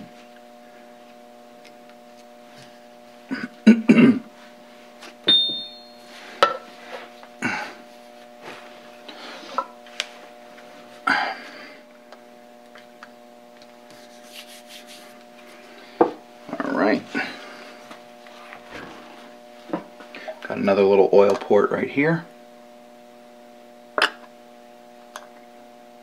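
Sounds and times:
steady hum: 0.0s - 26.0s
brief high ring: 5.3s - 6.3s.

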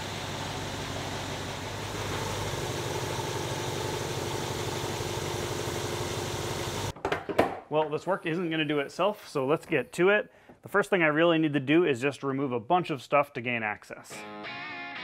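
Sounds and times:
car engine idling: 0.0s - 6.9s.

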